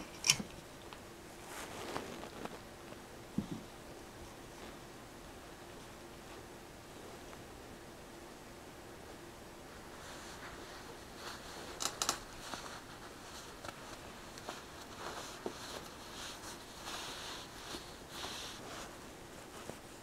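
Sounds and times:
paws scraping on woven mat: 1.3s - 4.9s, 9.8s - 20.0s.

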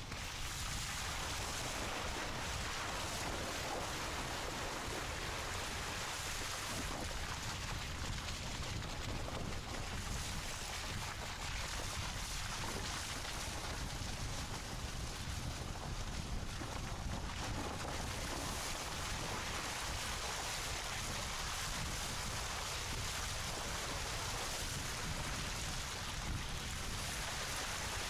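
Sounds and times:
wind on microphone: 0.0s - 28.0s.

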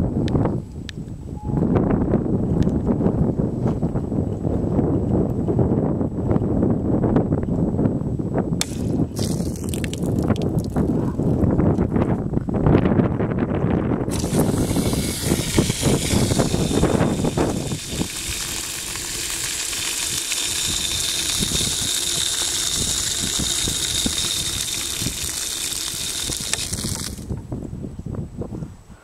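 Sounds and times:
water gushing from valve: 8.6s - 10.8s, 14.1s - 27.3s.

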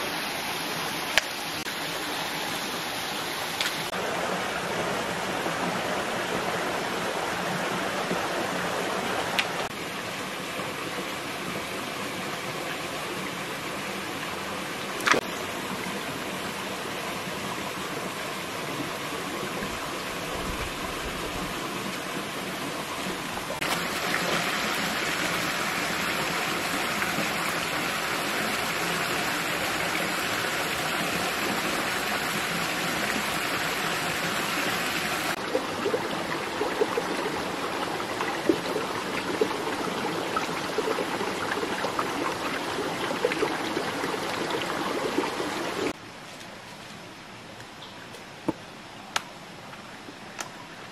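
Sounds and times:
rushing forest stream: 0.0s - 50.9s.

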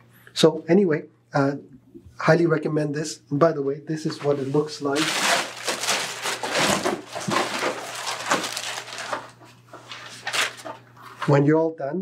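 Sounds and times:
plastic wrap crinkling: 4.1s - 10.8s.

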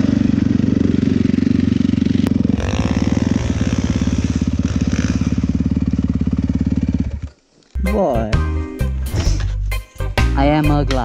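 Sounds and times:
dirt bike engine running: 0.0s - 7.4s.

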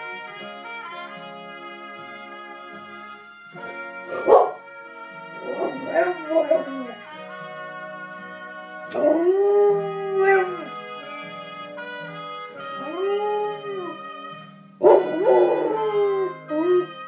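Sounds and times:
tv theme music: 0.0s - 17.0s
dog howling: 5.4s - 7.0s, 9.0s - 10.7s, 12.8s - 14.0s, 14.8s - 17.0s.

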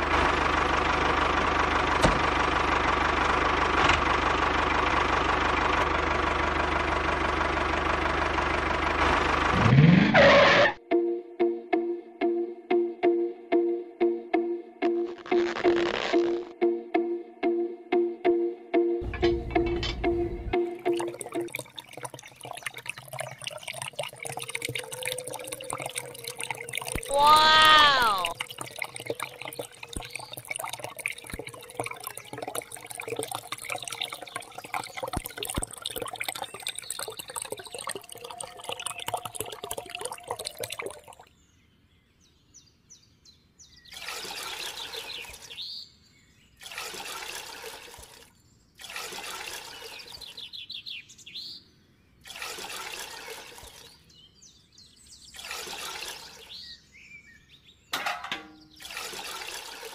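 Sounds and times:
liquid running from hose into tub: 15.0s - 16.5s, 20.6s - 41.2s, 43.9s - 45.5s, 46.6s - 50.3s, 52.2s - 54.0s, 55.4s - 56.6s, 58.7s - 59.9s
liquid splashing: 20.6s - 41.2s, 43.9s - 45.4s, 46.6s - 50.2s, 52.2s - 54.0s, 55.4s - 56.6s, 58.8s - 59.9s.

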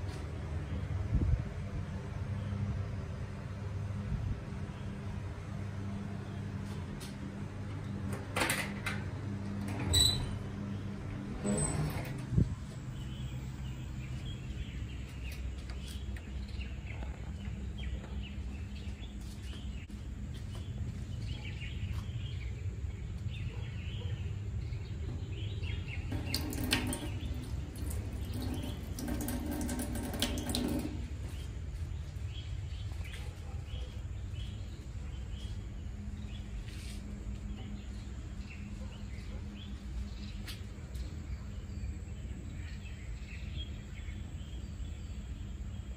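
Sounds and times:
steady low hum: 0.0s - 45.9s
faint birds chirping: 9.1s - 45.9s
tap water running into steel trough: 26.1s - 31.2s.

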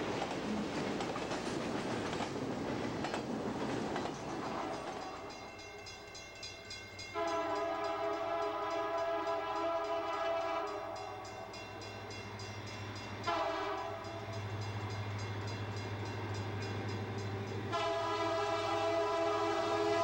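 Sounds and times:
diesel locomotive engine rumbling: 0.0s - 20.0s
train air horn blasts: 7.1s - 11.4s, 13.2s - 14.4s, 17.7s - 20.0s.

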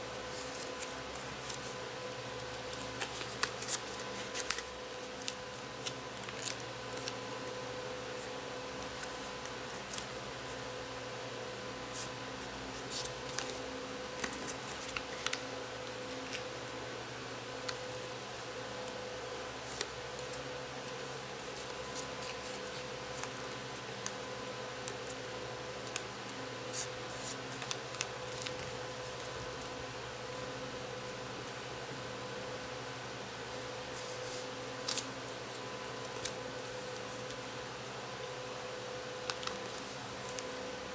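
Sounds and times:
paper being folded and creased: 2.7s - 7.2s, 12.8s - 13.6s, 14.2s - 15.4s, 19.7s - 24.2s, 26.7s - 29.4s, 33.5s - 35.1s, 39.2s - 40.6s.

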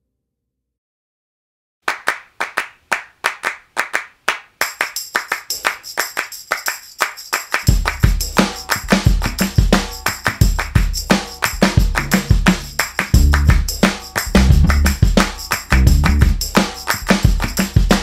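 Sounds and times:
handclap beat: 1.9s - 18.0s
jingling percussion: 4.6s - 18.0s
deep bass drum: 7.7s - 9.8s, 10.4s - 18.0s.

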